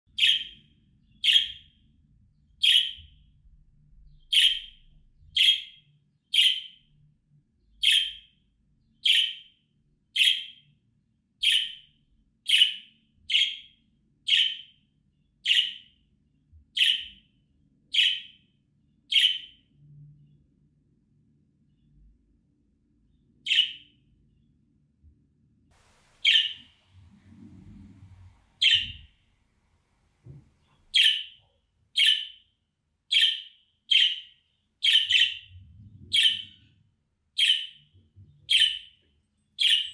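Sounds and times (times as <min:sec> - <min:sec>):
budgerigar contact calls: 0:26.1 - 0:26.7, 0:28.6 - 0:29.1, 0:30.9 - 0:31.4.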